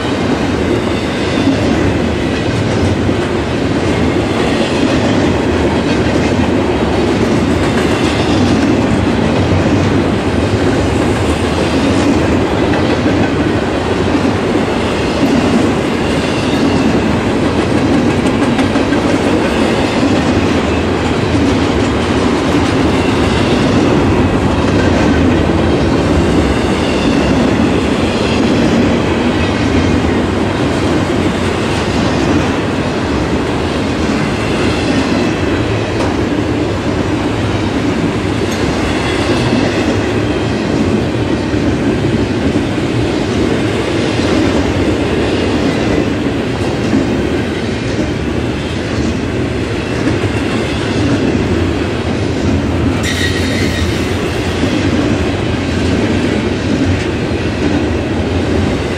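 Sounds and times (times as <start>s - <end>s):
train wheels rumbling on rail: 0.0s - 58.9s
faint high wheel squeal: 53.0s - 54.2s.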